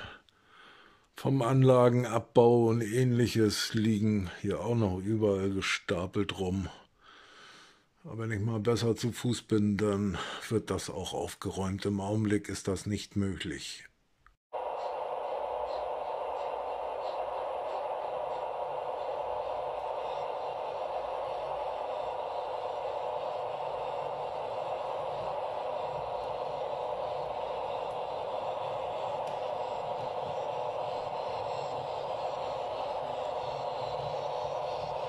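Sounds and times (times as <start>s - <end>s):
model train motor whirring: 14.6s - 35.0s.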